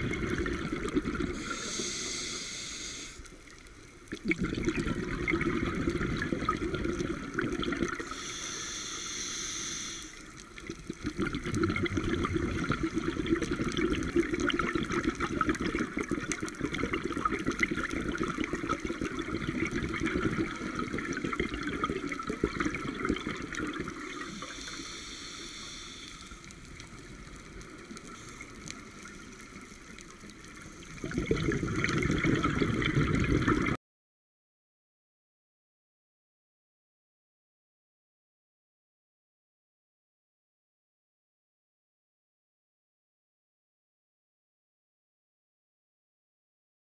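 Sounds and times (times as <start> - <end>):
bubbling exhaled air underwater: 0.0 - 3.2, 4.1 - 33.8
regulator hiss: 1.3 - 3.4, 8.0 - 10.4, 24.0 - 26.6.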